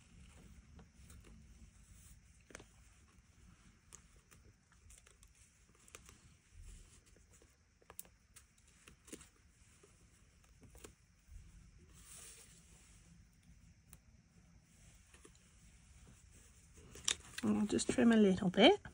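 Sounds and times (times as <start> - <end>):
faint paper handling clicks: 0.1 - 12.7.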